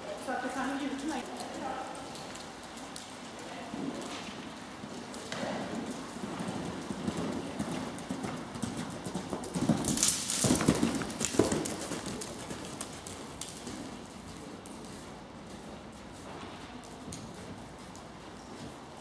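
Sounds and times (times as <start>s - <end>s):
horse hooves thudding on sand: 3.7s - 19.0s.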